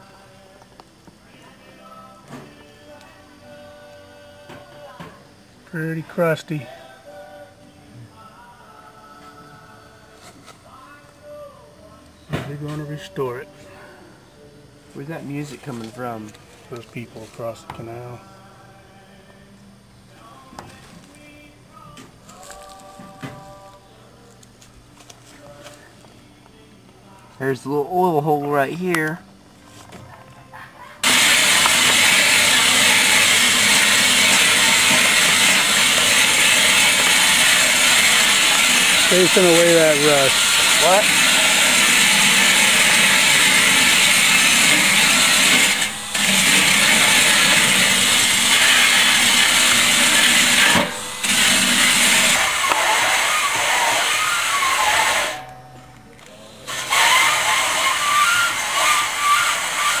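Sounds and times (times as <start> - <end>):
drill wire brush scrubbing metal: 31.0 - 55.4, 56.7 - 60.0.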